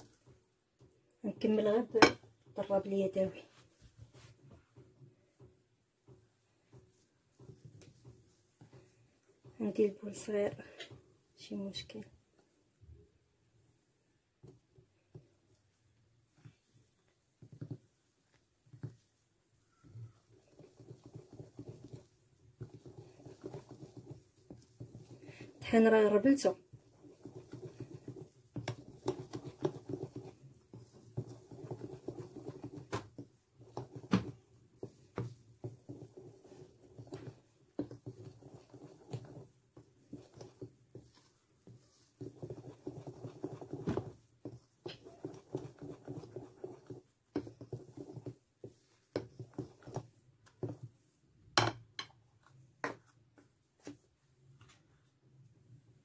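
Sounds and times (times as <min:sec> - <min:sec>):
whisk beating batter: 0:00.0 - 0:11.0, 0:14.4 - 0:51.4
whisk knocking against bowl: 0:20.4 - 0:50.9.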